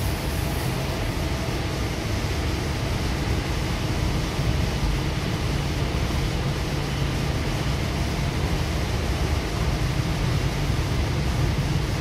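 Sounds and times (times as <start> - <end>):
train interior low rumble: 0.0 - 12.0.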